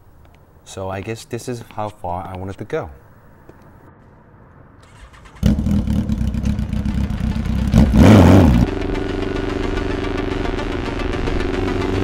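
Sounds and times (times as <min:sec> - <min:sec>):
motorcycle engine running: 0:05.2 - 0:12.0.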